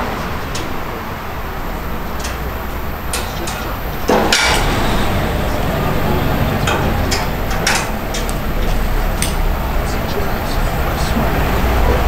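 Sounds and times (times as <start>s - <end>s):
train clank: 0.0s - 12.0s
train running rumble: 0.0s - 12.0s
metallic knocks and clinks: 1.6s - 9.8s.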